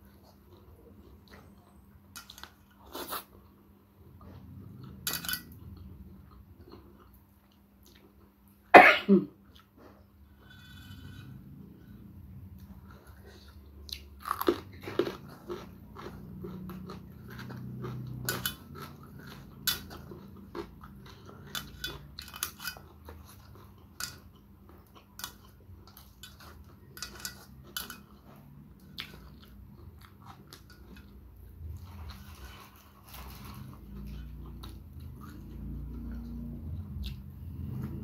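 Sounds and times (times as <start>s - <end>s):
person chewing with crisp crunches: 0.0s - 8.7s, 9.4s - 38.0s.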